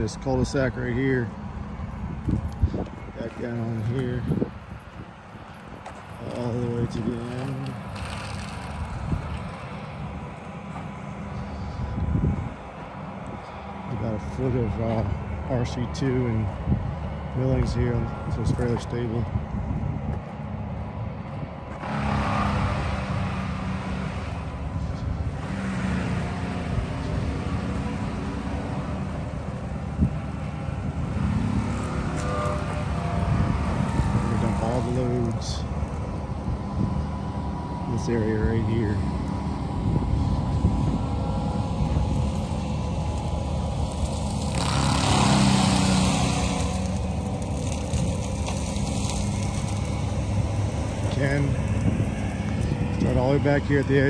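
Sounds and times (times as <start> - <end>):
vehicle engine at low speed: 0.0 - 54.0
tyres rolling on gravel: 5.2 - 10.9, 41.1 - 54.0.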